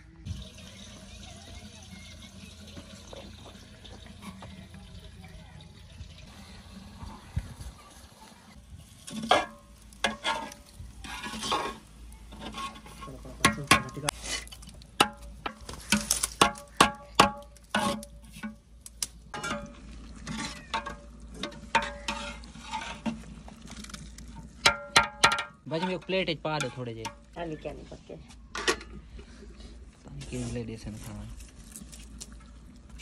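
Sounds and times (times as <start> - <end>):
ladle scraping rice in metal pot: 8.9 - 14.6, 17.7 - 18.5, 19.4 - 24.0.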